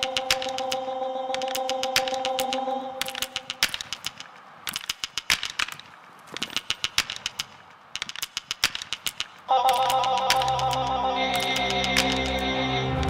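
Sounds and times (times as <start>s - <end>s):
music with steady tones: 9.7s - 13.0s.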